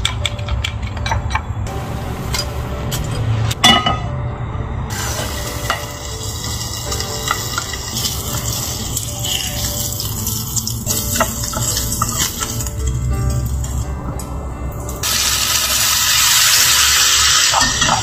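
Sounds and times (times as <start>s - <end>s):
duck breast sizzling in oil: 15.0s - 18.0s.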